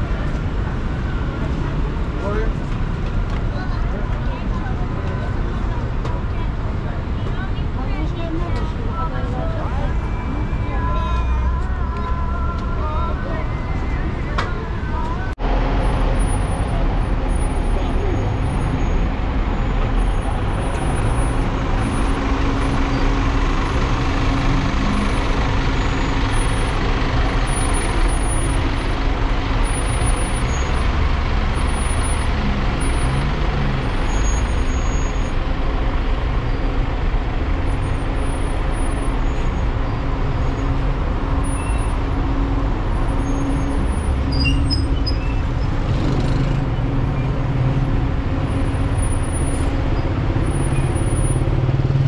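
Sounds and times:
street traffic noise: 0.0 - 52.0
bus engine idling: 11.3 - 52.0.

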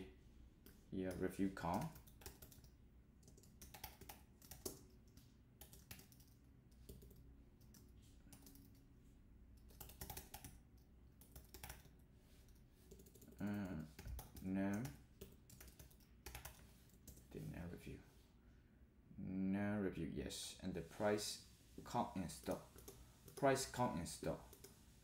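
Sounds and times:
computer keyboard typing: 0.6 - 8.9, 9.6 - 17.3, 22.4 - 23.7, 24.5 - 24.8.

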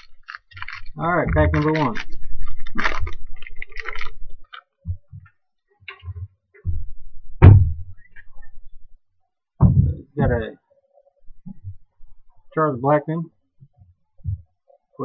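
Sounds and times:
foil wrapper crinkling: 0.0 - 4.8
sharp thump: 7.4 - 7.9.

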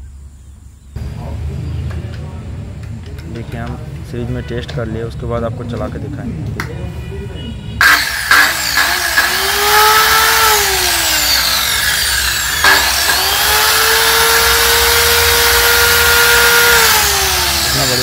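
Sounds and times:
circular saw whining: 7.8 - 18.0.

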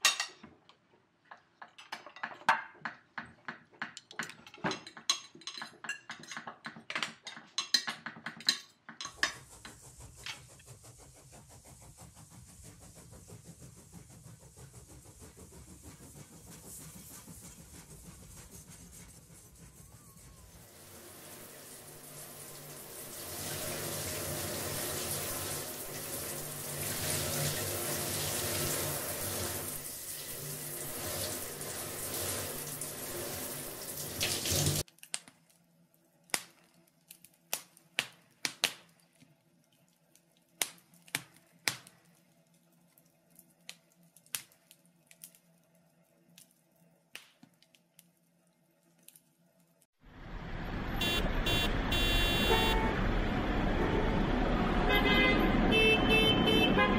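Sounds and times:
water running from a tap: 20.7 - 34.9.

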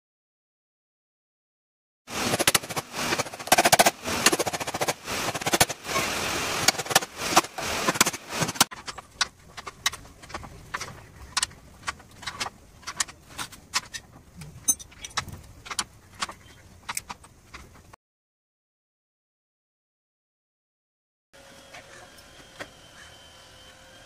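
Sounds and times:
hand tools clinking: 13.8 - 17.0.

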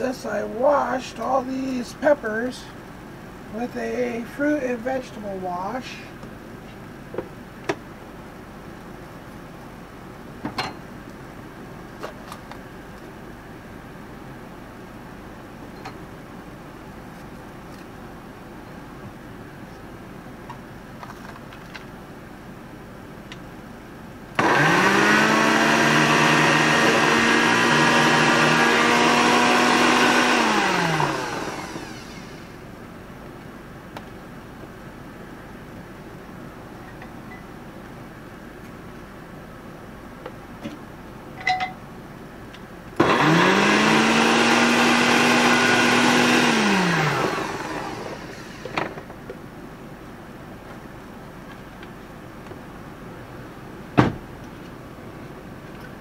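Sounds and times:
blender motor running: 24.4 - 32.6, 43.0 - 49.0.

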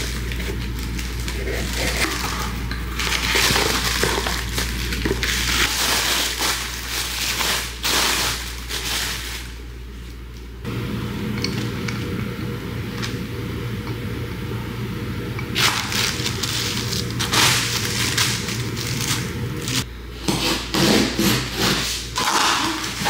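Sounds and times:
plastic packaging crinkling: 0.0 - 9.7, 15.6 - 19.9.

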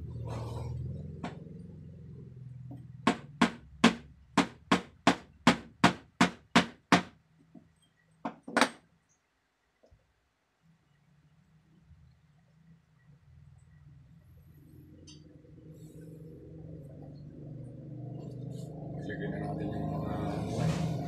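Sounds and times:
sharp knocks on wood: 3.1 - 7.1.

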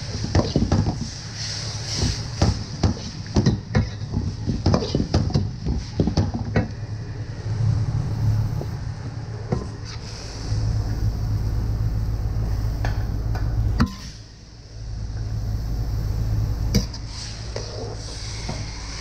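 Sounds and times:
stove rumble: 6.8 - 9.4, 10.0 - 19.0.

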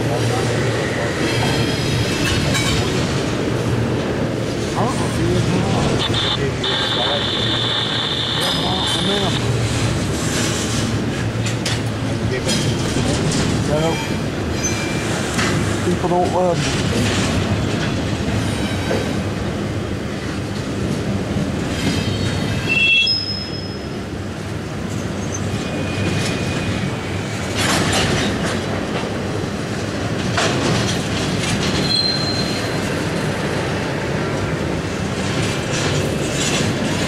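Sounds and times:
train cars clanking: 0.0 - 6.3, 8.5 - 37.0
train wheels rumbling on rail: 0.0 - 37.0
high wheel squeals: 31.8 - 32.8.

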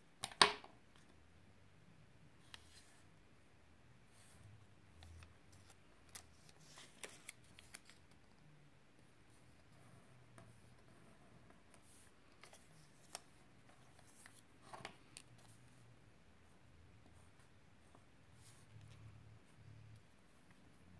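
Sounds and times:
paper crackling and creasing: 5.0 - 8.3.

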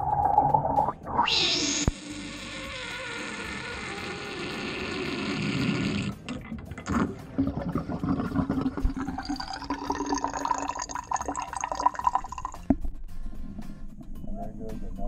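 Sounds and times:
water draining down sink: 6.3 - 12.7
water pouring into sink: 6.4 - 12.7.

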